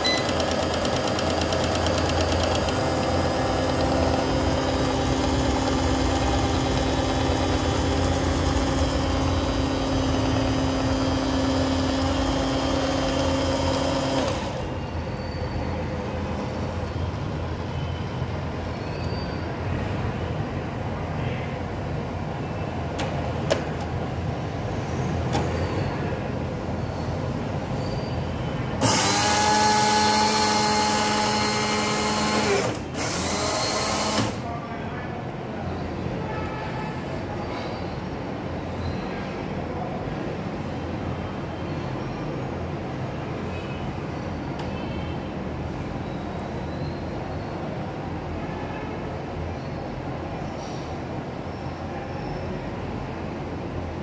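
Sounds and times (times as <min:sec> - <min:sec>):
vending machine motor whine: 0:00.0 - 0:14.7, 0:28.8 - 0:34.4.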